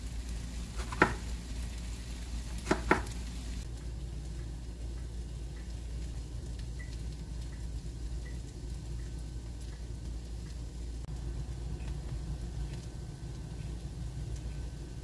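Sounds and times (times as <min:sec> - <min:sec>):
low steady hum: 0:00.0 - 0:15.0
knife chopping on wooden board: 0:00.8 - 0:01.2, 0:02.6 - 0:03.1.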